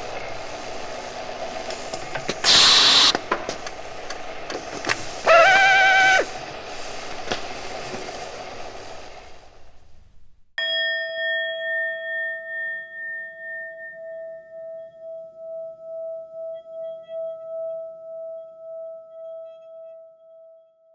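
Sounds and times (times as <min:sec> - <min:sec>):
electric drill motor whine: 0:02.4 - 0:03.2, 0:05.2 - 0:06.3
bell-like chime: 0:10.6 - 0:20.7.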